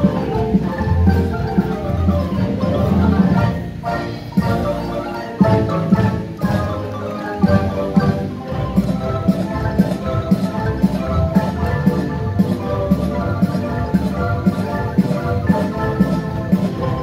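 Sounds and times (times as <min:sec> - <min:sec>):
marimba ensemble playing: 0:00.0 - 0:17.0.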